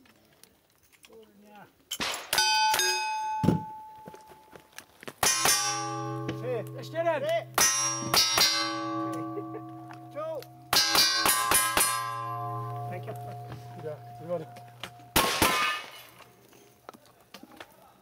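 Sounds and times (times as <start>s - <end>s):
steel targets ringing: 2.0s - 4.5s, 5.2s - 16.3s
revolver shots: 14.8s - 16.2s.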